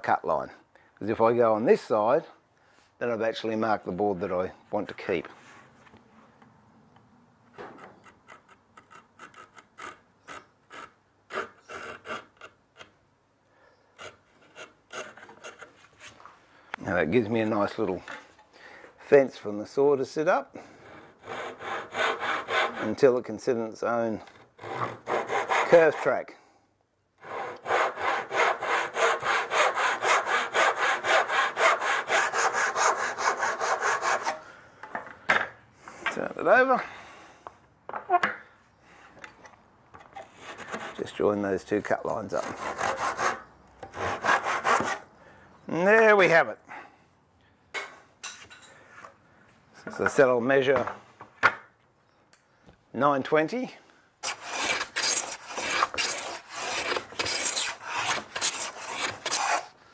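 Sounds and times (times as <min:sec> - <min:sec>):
chisel scraping wood: 0:07.8 - 0:12.9, 0:14.0 - 0:16.2, 0:40.0 - 0:41.2, 0:54.2 - 0:59.7
hand saw cutting wood: 0:08.3 - 0:12.6, 0:14.0 - 0:15.8, 0:20.8 - 0:23.1, 0:24.3 - 0:26.2, 0:27.2 - 0:34.4, 0:40.2 - 0:41.2, 0:42.3 - 0:45.0, 0:54.2 - 0:59.8.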